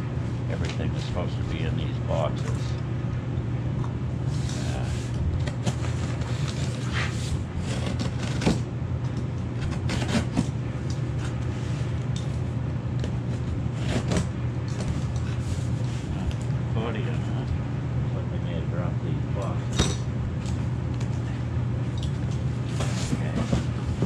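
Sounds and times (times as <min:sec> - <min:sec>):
steady low hum: 0:00.0 - 0:24.0
knife cutting cardboard and tape: 0:04.5 - 0:08.6, 0:09.6 - 0:10.5, 0:13.4 - 0:15.6.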